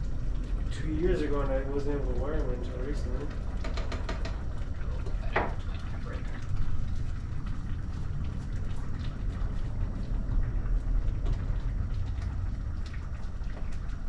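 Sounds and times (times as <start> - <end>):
low rumble: 4.4 - 14.0.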